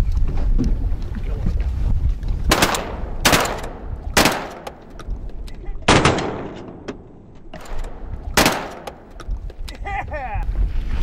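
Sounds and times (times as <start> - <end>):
wind noise: 0.0 - 11.0
shotgun shots: 2.5 - 4.9, 5.9 - 7.0, 7.6 - 9.2.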